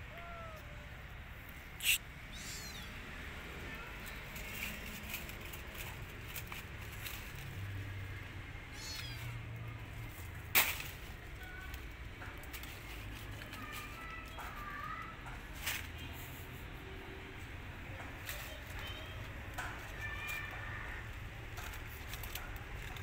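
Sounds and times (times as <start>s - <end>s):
kitten meowing faintly: 0.0s - 1.1s, 1.8s - 3.0s, 8.7s - 9.4s
sharp crack: 10.4s - 11.1s.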